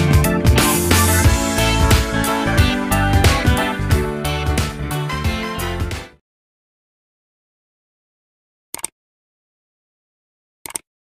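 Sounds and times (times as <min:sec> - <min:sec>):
short clicks: 0:08.7 - 0:09.0, 0:10.6 - 0:10.9.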